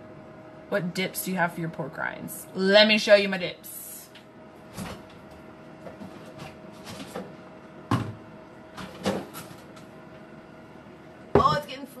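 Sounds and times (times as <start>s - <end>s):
air fryer humming: 0.0s - 12.0s
containers knocking and clunking: 5.8s - 9.8s, 11.4s - 11.8s.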